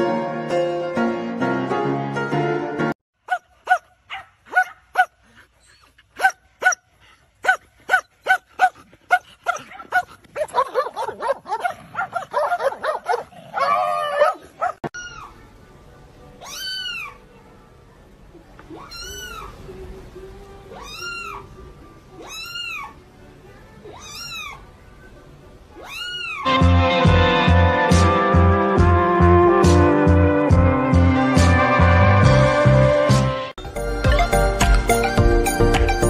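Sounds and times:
dog yipping: 0:03.3 - 0:05.1, 0:25.8 - 0:26.5
kitten meowing: 0:18.7 - 0:19.5, 0:20.7 - 0:21.4, 0:22.2 - 0:23.0, 0:23.9 - 0:24.6, 0:25.8 - 0:26.5.

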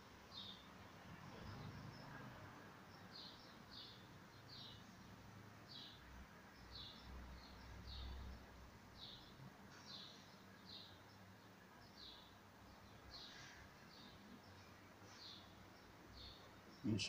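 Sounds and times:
bird chirping: 0:00.2 - 0:17.0.

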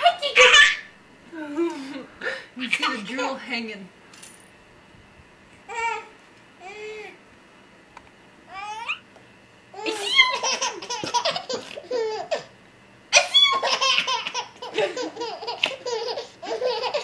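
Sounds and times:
baby laughing: 0:00.0 - 0:00.9, 0:09.8 - 0:12.5, 0:13.2 - 0:17.0.

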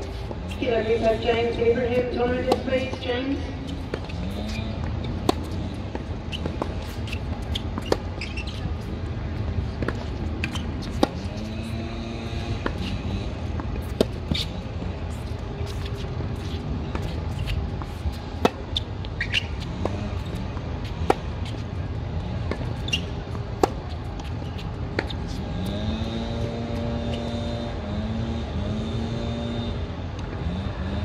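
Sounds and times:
drawn-out humming tone: 0:00.0 - 0:21.6
racket hitting tennis ball: 0:01.9 - 0:03.1, 0:03.7 - 0:08.1, 0:09.8 - 0:14.5, 0:15.1 - 0:21.6, 0:22.5 - 0:25.4.

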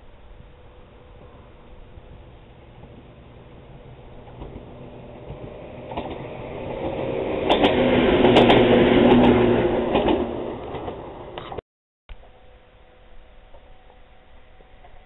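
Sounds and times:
electric railcar passing: 0:00.0 - 0:11.6, 0:12.2 - 0:15.0
train wheels clacking: 0:02.8 - 0:11.4.

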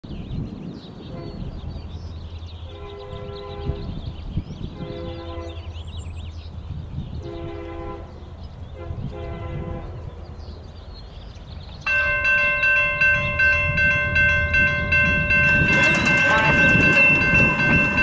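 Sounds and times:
locomotive air horn blasts: 0:02.7 - 0:04.0, 0:04.8 - 0:05.6, 0:07.2 - 0:08.1, 0:08.8 - 0:10.0.

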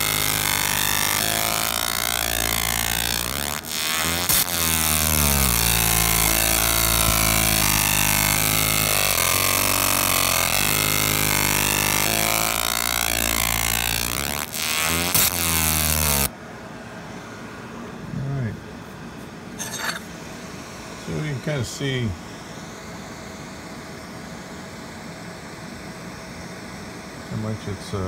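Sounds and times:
laser engraver buzzing hum: 0:00.0 - 0:16.3.

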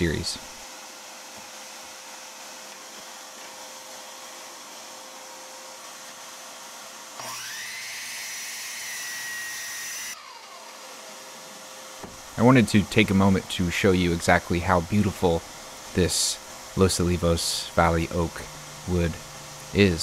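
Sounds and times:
steady hiss: 0:00.0 - 0:07.0, 0:11.4 - 0:20.0
miter saw motor whining: 0:07.2 - 0:11.4.

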